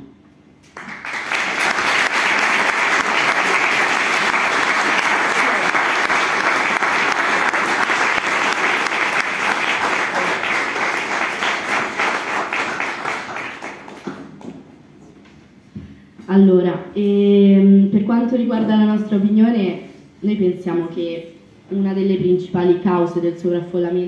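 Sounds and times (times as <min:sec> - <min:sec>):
audience applauding: 0:00.7 - 0:14.6.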